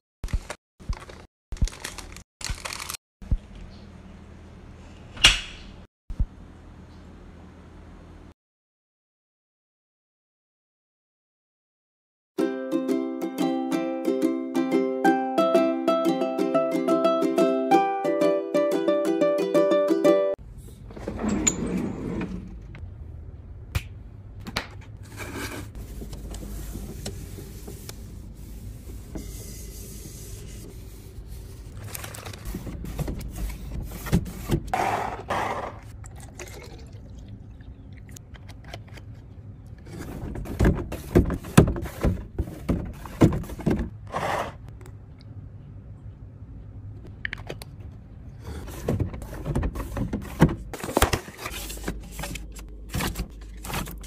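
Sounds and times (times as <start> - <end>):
juice pouring into plastic bottle: 36.0 - 37.4.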